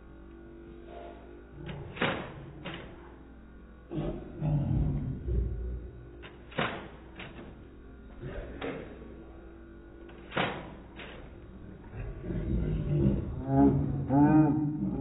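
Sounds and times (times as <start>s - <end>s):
toy blaster firing foam darts: 1.6s - 3.2s, 6.2s - 7.7s, 10.0s - 11.4s.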